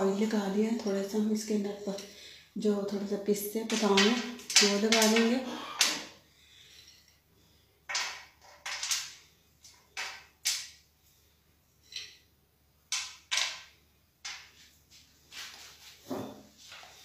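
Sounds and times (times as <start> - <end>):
nuts clicking into metal tray: 3.7 - 5.9, 7.9 - 10.7, 12.9 - 14.4.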